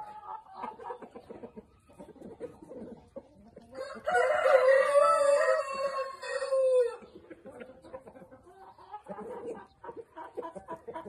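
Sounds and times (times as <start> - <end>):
chickens clucking: 0.0 - 11.0
rooster crowing: 3.8 - 7.0.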